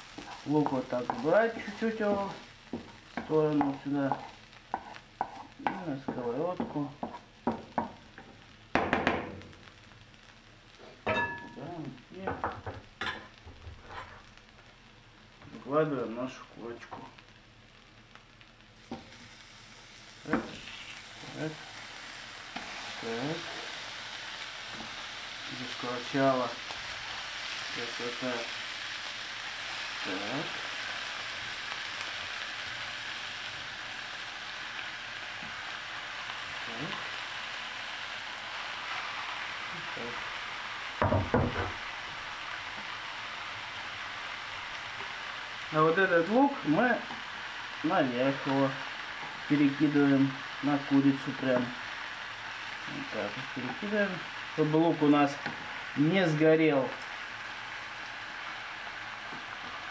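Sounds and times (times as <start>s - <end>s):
onions sizzling in frying pan: 0.0s - 59.9s
ringing clink of kitchenware: 11.1s - 11.6s.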